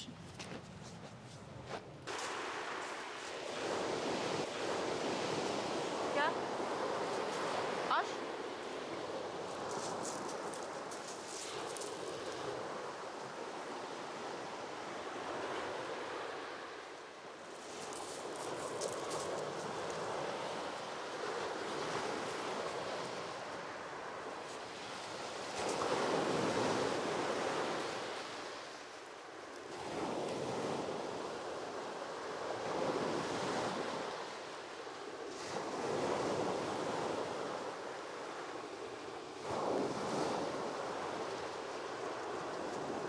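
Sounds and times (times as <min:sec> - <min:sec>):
sea waves breaking on beach: 0:02.1 - 0:43.0.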